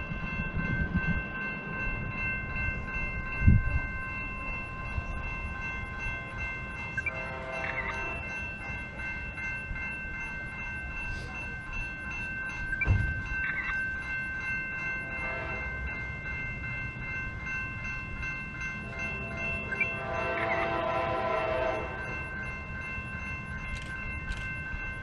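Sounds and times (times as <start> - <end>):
distant train horn: 6.2 - 8.6, 14.9 - 16.0, 18.8 - 22.3.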